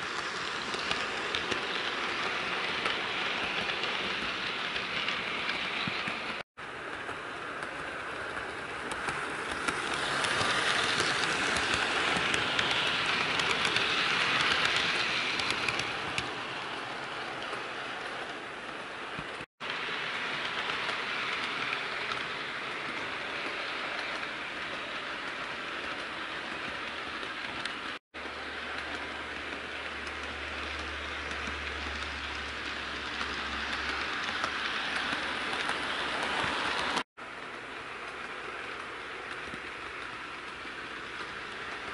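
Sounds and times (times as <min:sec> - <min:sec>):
model train motor whir: 0:00.0 - 0:18.1
wheels clicking on rail: 0:00.0 - 0:41.9.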